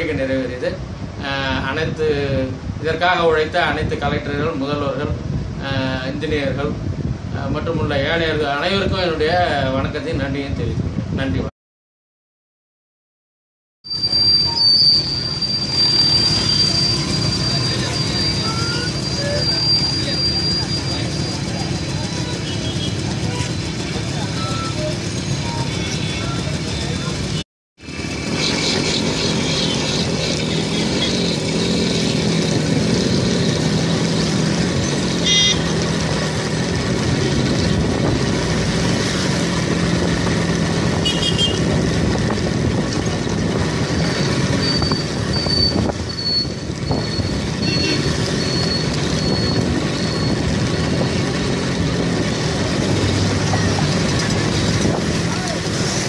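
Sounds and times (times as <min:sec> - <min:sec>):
wind and road noise: 0:00.0 - 0:11.5, 0:13.8 - 0:56.0
vehicle engine drone: 0:13.9 - 0:56.0
short high beeps: 0:24.3 - 0:26.3
horn toots: 0:34.8 - 0:35.9, 0:41.0 - 0:41.8, 0:47.6 - 0:48.8.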